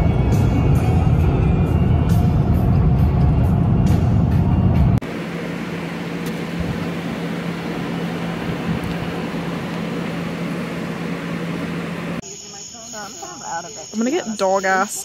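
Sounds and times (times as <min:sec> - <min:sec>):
low motor hum: 0:00.0 - 0:12.2
electric fan whirring: 0:04.9 - 0:12.2.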